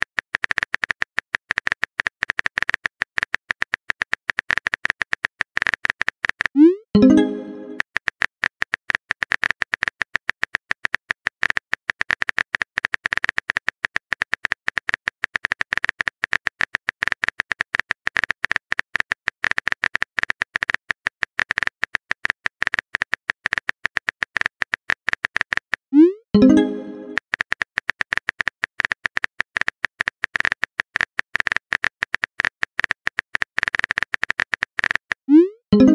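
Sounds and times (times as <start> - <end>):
keyboard typing clicks: 0.4 - 13.6, 15.7 - 35.9
message sent swoop and chime: 7.0 - 7.8, 26.4 - 27.2.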